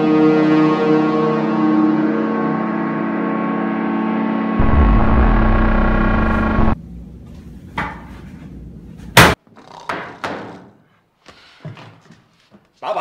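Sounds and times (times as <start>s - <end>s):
ominous synth music with bass drone: 0.0s - 6.8s.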